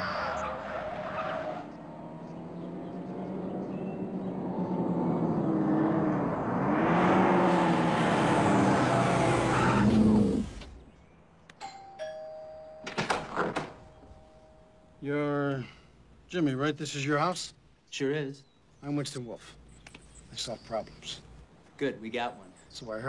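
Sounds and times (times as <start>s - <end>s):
car engine revving: 1.0s - 10.8s
two-tone doorbell chime: 11.6s - 13.1s.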